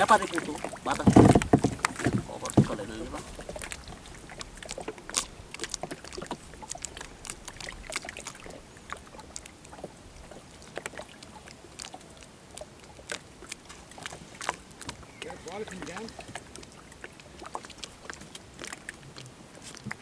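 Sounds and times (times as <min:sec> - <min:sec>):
water lapping and splashing: 0:00.0 - 0:20.0
light knocks on wooden boat: 0:00.9 - 0:03.0.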